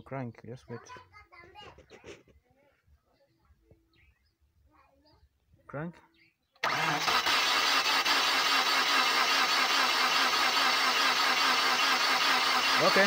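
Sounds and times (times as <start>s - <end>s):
starter motor cranking engine: 6.6s - 13.0s.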